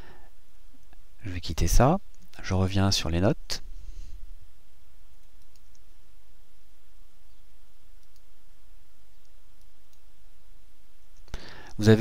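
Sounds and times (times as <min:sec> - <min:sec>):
steady low hum: 0:00.0 - 0:12.0
computer mouse clicks: 0:02.1 - 0:02.4, 0:05.2 - 0:05.9, 0:08.0 - 0:08.3, 0:09.1 - 0:10.1.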